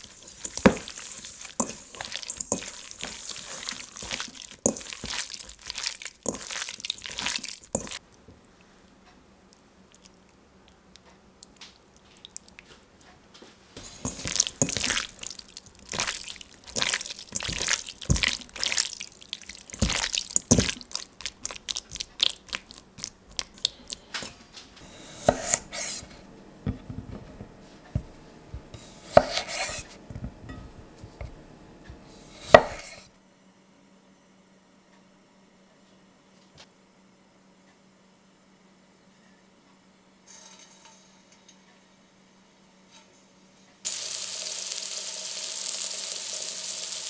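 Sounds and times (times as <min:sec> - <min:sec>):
wet squelching of mixing meat: 0:00.0 - 0:08.0, 0:13.8 - 0:24.1.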